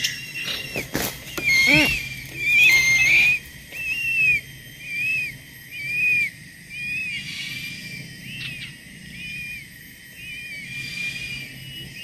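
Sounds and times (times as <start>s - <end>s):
eagle whistled calls: 0.0s - 12.0s.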